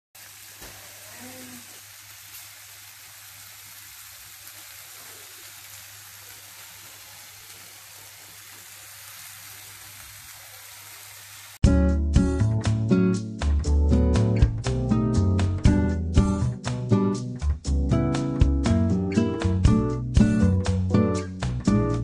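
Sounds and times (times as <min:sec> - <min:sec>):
food sizzling in a pan: 0:00.2 - 0:11.6.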